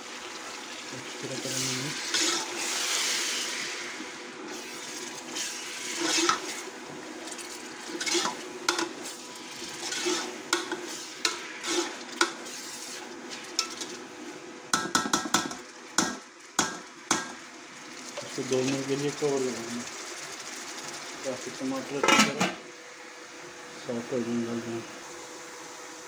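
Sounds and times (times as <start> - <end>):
faint frying sizzle: 0.0 - 26.0
metal spoon scraping a pot: 7.9 - 8.9, 9.8 - 13.0.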